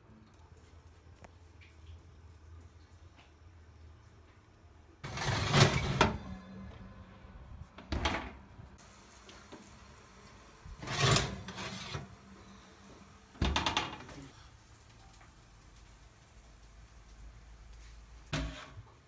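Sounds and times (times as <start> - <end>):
baking tray rattling and scraping: 5.0 - 6.2, 10.8 - 12.1, 13.4 - 14.3.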